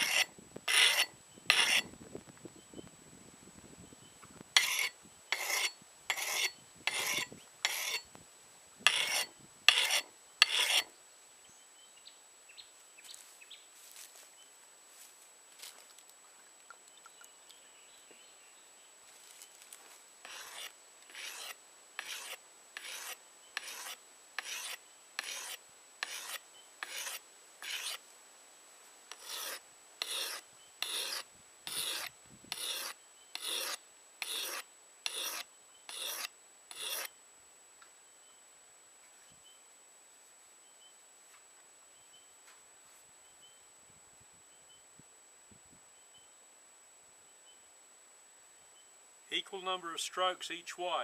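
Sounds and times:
blade scraping on whetstone: 0.0 - 1.9, 4.6 - 8.1, 8.8 - 10.9, 20.2 - 28.0, 29.1 - 37.1.

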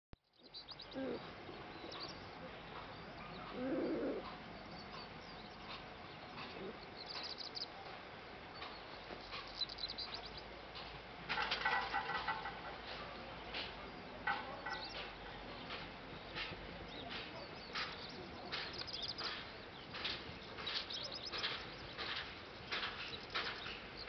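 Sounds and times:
bird cooing: 0.8 - 2.2, 2.8 - 4.4.

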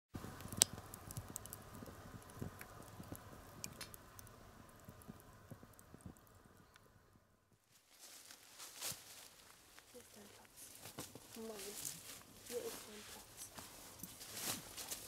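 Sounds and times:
fire pops: 0.2 - 6.9
fire low hiss: 0.2 - 15.0
wood fire crackling: 0.2 - 15.0.

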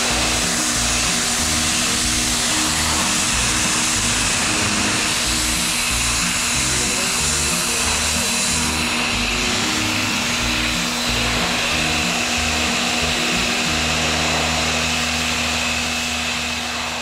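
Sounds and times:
background music: 0.0 - 16.2
pressure washer jet hissing: 0.0 - 17.0.

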